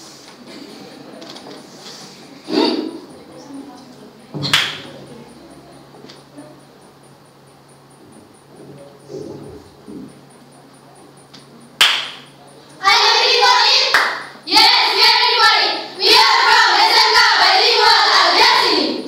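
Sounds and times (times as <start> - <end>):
girls' voices in unison: 12.8 - 19.0.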